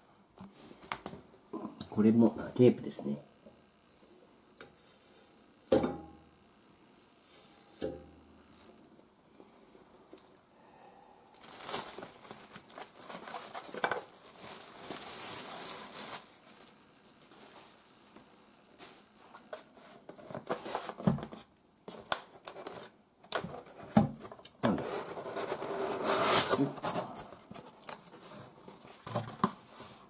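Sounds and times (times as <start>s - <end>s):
cardboard and paper rustling: 11.4s - 18.2s, 18.8s - 30.0s.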